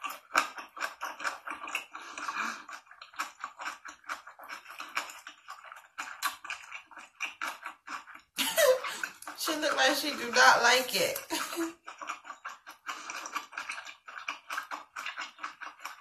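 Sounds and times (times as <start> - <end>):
crunchy chewing: 0.0 - 16.0
person speaking: 8.4 - 11.7.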